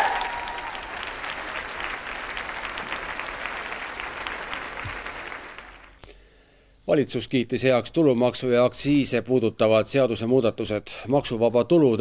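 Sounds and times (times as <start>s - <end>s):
crowd applauding: 0.0s - 6.0s.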